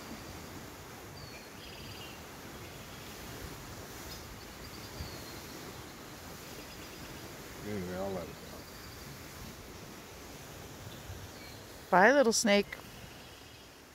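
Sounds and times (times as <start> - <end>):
steady background hiss: 0.0 - 13.9
faint bird chirps: 4.1 - 7.4, 8.2 - 9.2.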